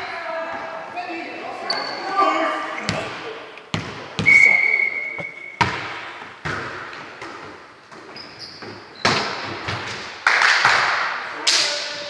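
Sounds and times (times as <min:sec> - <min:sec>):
volleyball smacks echoing: 0:02.8 - 0:04.4, 0:05.2 - 0:07.6.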